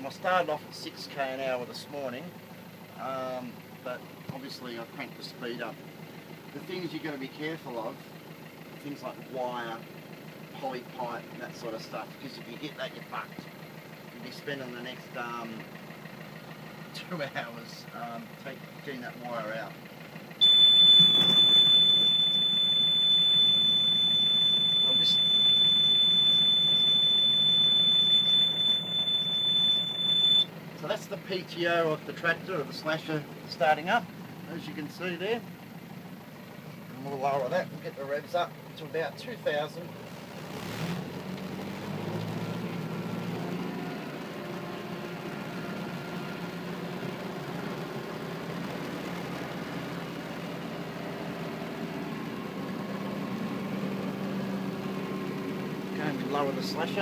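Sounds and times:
high-pitched mechanical whine: 20.4s - 30.5s
tractor driving rotary slasher: 20.4s - 30.5s, 39.8s - 57.0s.

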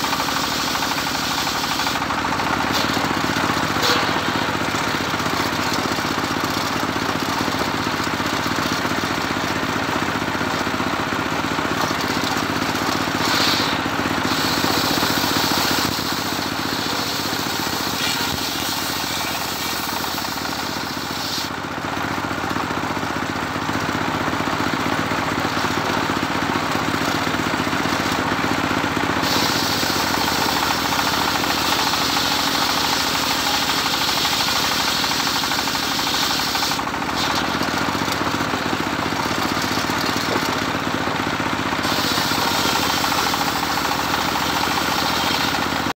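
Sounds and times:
saw blade cutting wood: 0.0s - 7.4s, 11.8s - 21.6s, 29.1s - 40.7s, 41.8s - 45.9s
engine drone: 0.0s - 46.0s.

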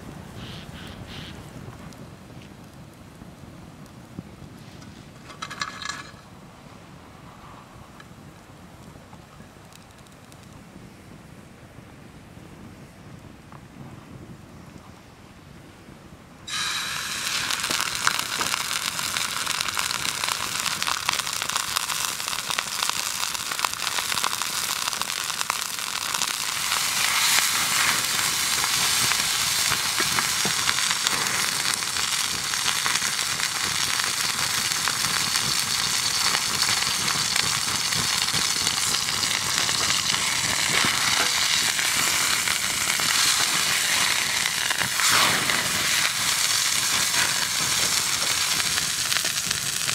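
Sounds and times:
meat sizzling with pops: 16.5s - 49.9s
meat hitting skillet: 25.9s - 49.9s.

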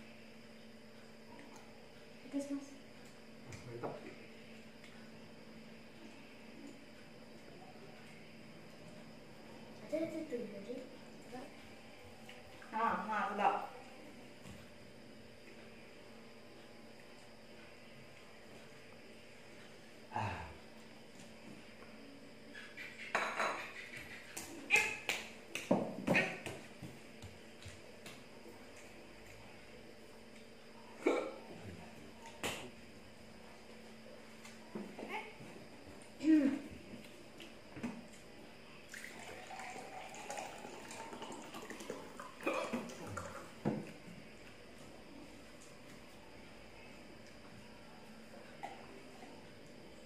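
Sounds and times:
plates and bowls clinking: 23.1s - 23.8s
water pouring into a glass: 38.9s - 43.5s.

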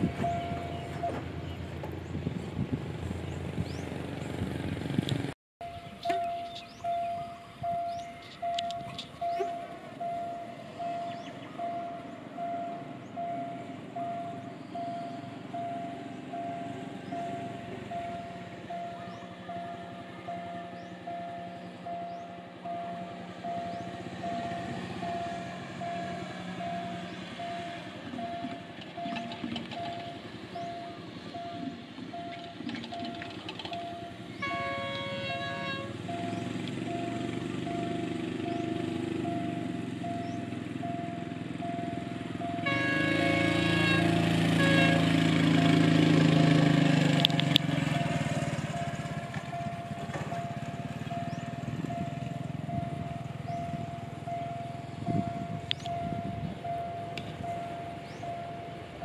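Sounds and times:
level crossing warning beeps: 0.0s - 1.2s, 5.6s - 43.4s, 48.7s - 59.0s
train rumble: 0.0s - 59.0s
locomotive horn blasts: 34.0s - 36.1s, 42.5s - 45.6s.

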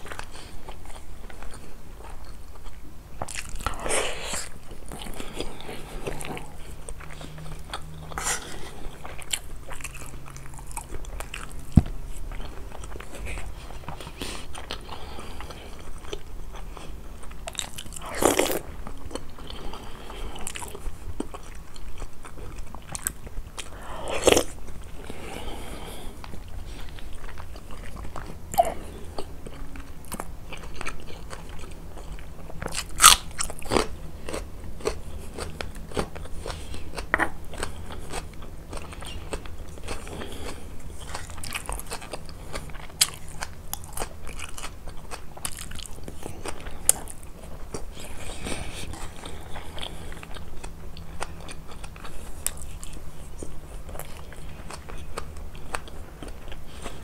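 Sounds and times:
chewing: 0.0s - 57.0s
crunching bites of onion: 32.6s - 36.2s.

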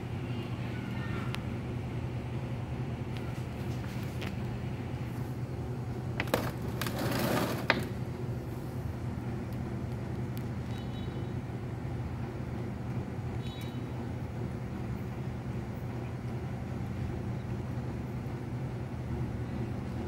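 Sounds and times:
low mechanical hum: 0.0s - 20.0s
rustling noise: 3.3s - 4.4s.

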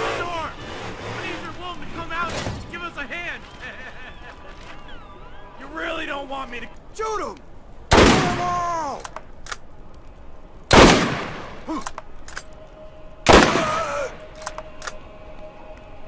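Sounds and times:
men shouting cries: 3.3s - 7.4s, 13.4s - 14.6s
sniper rifle shots: 7.9s - 8.5s, 10.7s - 11.7s, 13.3s - 14.0s.

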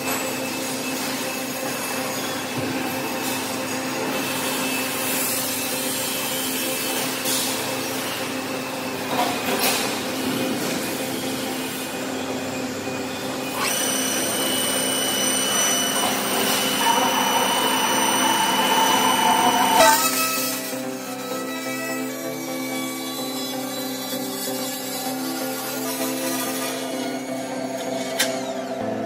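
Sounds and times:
roll-forming machine humming: 0.0s - 22.0s
circular saw cutting metal: 0.0s - 29.0s
high-pitched whine: 0.0s - 29.0s.

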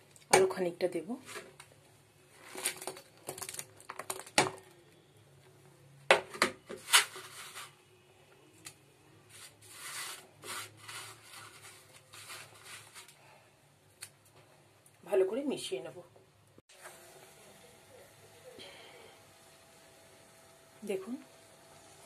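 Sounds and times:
spatula scraping in pan: 9.3s - 13.1s.

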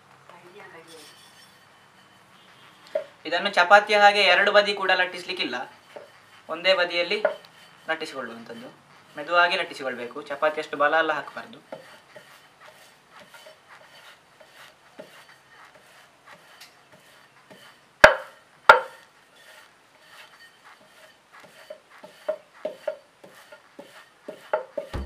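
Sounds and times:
rolling pin rubbing on dough: 0.2s - 25.0s
sharp knocks: 18.0s - 19.0s, 24.4s - 25.0s.

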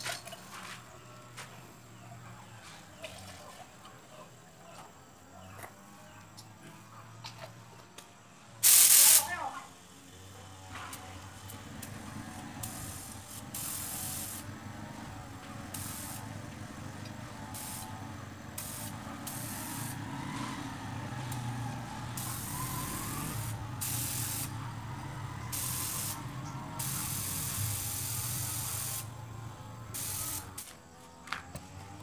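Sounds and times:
spray gun hissing bursts: 8.6s - 9.6s, 11.4s - 20.1s, 21.1s - 24.7s, 25.4s - 30.8s.

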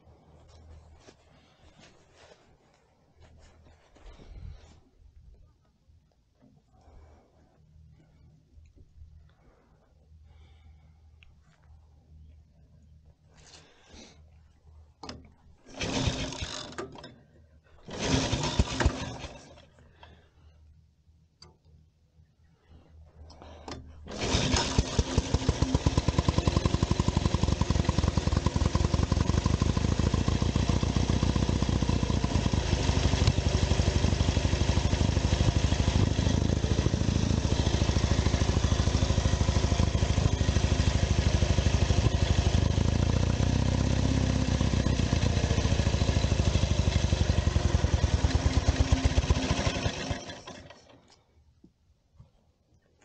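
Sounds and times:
motorcycle engine running: 15.7s - 16.7s, 17.9s - 19.6s, 24.1s - 50.7s.

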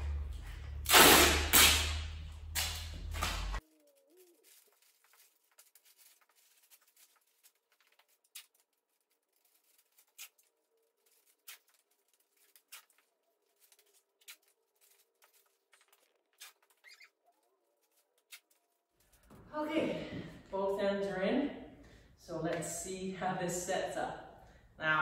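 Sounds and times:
duct tape being pulled: 0.8s - 17.1s
plastic tarp crackling: 2.6s - 17.1s.

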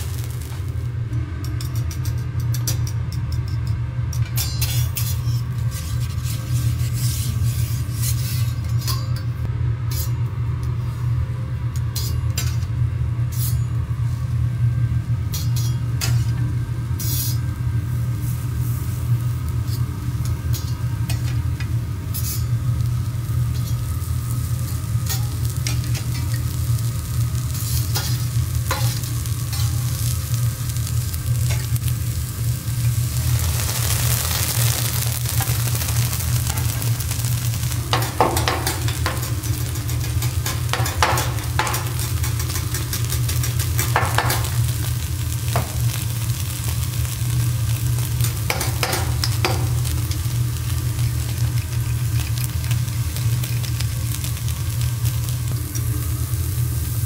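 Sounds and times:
vegetables sizzling on griddle: 0.0s - 0.9s, 15.3s - 57.0s
steady low hum: 0.0s - 57.0s.

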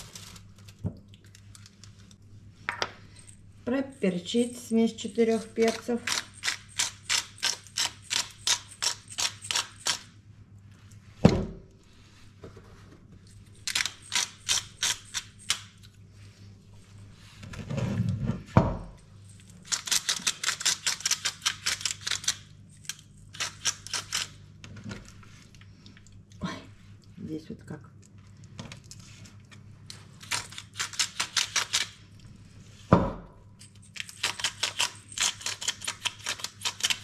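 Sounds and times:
pepper mill grinding clicks: 34.0s - 37.0s.

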